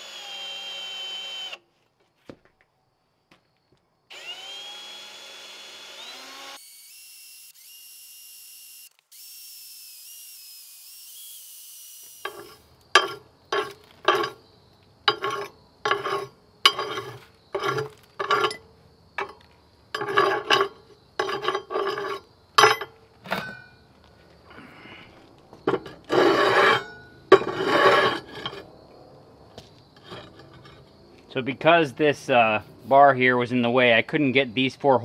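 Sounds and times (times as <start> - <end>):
shavings scraping across steel plate: 15.1 - 18.6.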